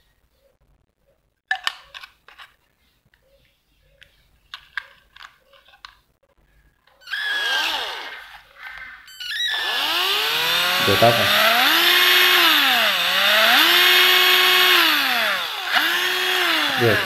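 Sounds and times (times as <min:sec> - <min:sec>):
cordless drill motor whine: 0:07.0 - 0:17.0.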